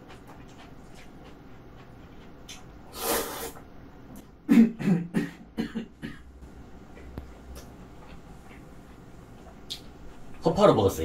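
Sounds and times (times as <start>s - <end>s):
chewing and smacking mouth sounds: 0.0s - 2.9s, 6.9s - 10.4s.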